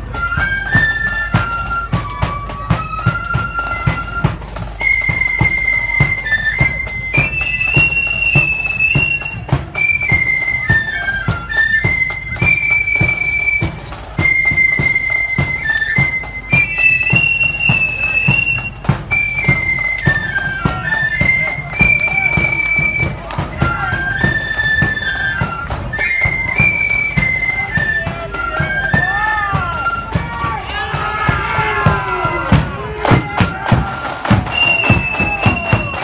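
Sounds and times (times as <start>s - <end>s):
shrill fife melody: 0.0s - 36.0s
steady drum beats: 0.0s - 36.0s.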